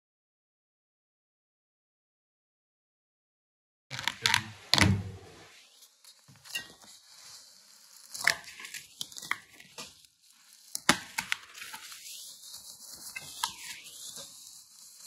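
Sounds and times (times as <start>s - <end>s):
bubble wrap crackles: 3.9s - 4.8s, 5.4s - 15.0s
packing material crinkling and tearing: 3.9s - 4.8s, 5.5s - 15.0s.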